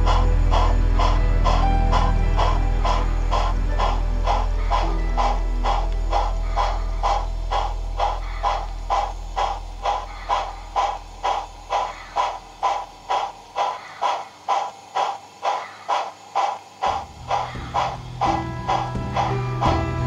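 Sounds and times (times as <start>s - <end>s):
low hum: 0.0s - 13.9s, 16.8s - 20.0s
model steam locomotive chuffing: 0.0s - 20.0s.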